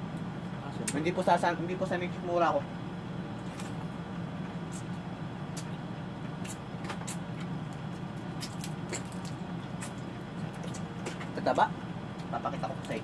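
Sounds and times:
steady low hum: 0.0 - 13.0
crab shells cracking: 7.7 - 10.1.

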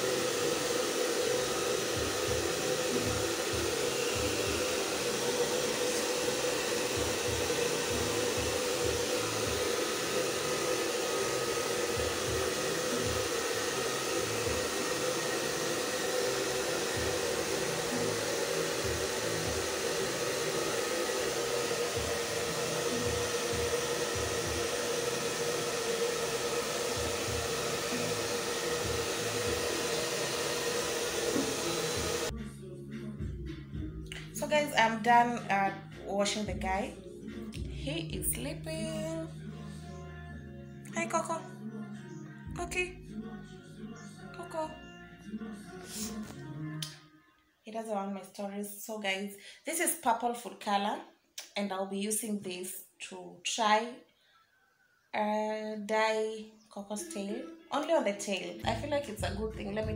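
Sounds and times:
hair dryer running: 0.0 - 32.4.

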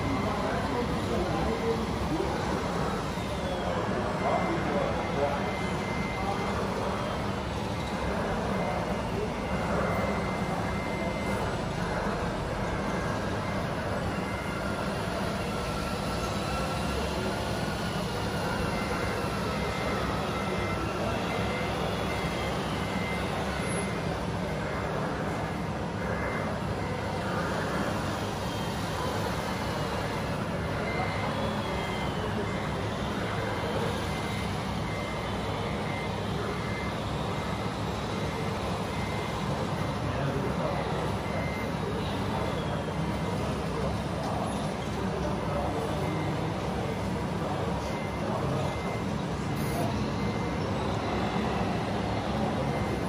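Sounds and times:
model truck engine sound: 0.0 - 53.0
reversing alarm beeping: 0.0 - 53.0.

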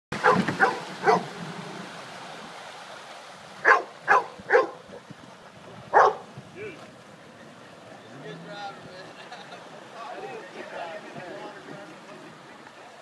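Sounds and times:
dog barking: 0.2 - 1.3, 3.6 - 4.8, 5.9 - 6.2.

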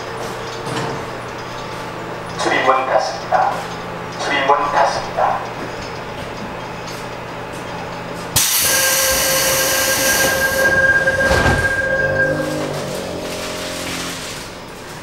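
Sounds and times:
low humming tones: 0.0 - 15.0
steady warning tone: 1.4 - 15.0
loud air hiss: 8.4 - 11.0
doors shutting thud: 10.1 - 14.6.

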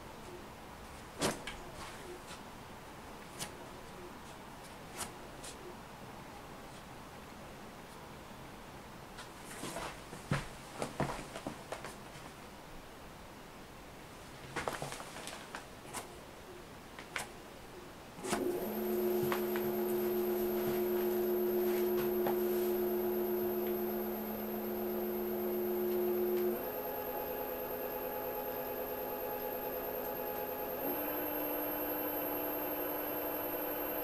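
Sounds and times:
electric motor whine: 18.2 - 34.0.

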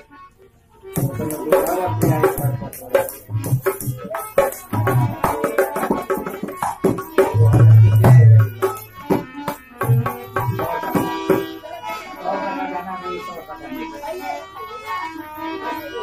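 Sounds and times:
harmonium sustained notes: 0.0 - 16.0
dholak drumming: 0.9 - 11.7.

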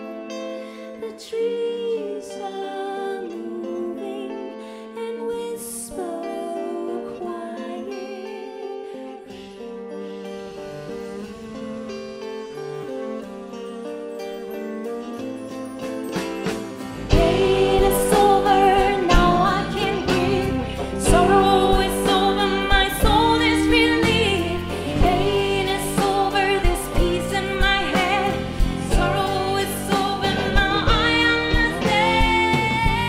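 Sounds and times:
woman singing: 0.6 - 9.7, 17.0 - 33.0
band accompanying: 10.1 - 33.0
drums keeping a steady beat: 16.2 - 33.0.

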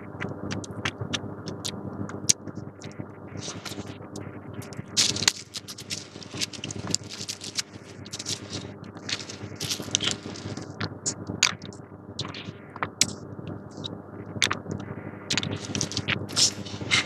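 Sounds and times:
low steady hum: 0.0 - 17.0
plastic gloves crinkling: 2.8 - 4.0, 4.6 - 13.1, 13.7 - 17.0.

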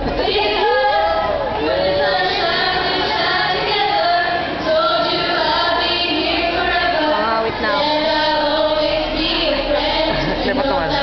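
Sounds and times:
girls singing into microphones: 0.0 - 11.0.

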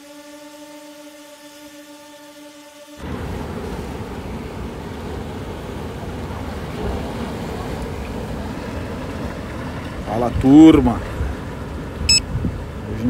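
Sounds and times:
wind on microphone: 3.0 - 13.0.

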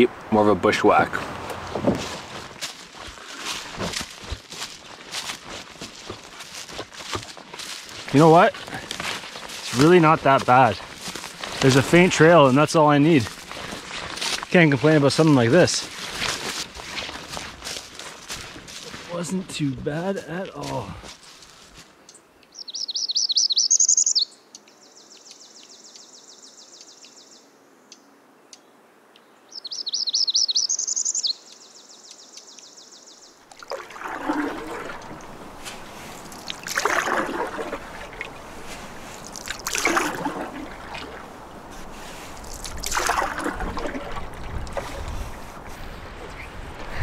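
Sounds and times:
canoe paddle splashes: 1.2 - 14.4, 33.5 - 47.0
songbird singing: 1.6 - 33.6.

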